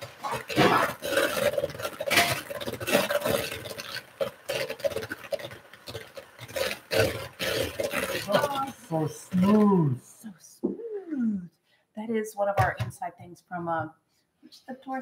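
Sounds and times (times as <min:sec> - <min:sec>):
electric hand mixer beating dough: 0:00.0 - 0:10.0.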